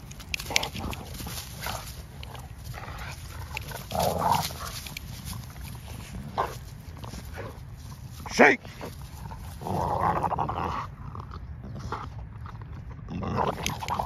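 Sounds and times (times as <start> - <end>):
scuffling: 0.0 - 9.7
dogs growling while playing: 0.0 - 14.0.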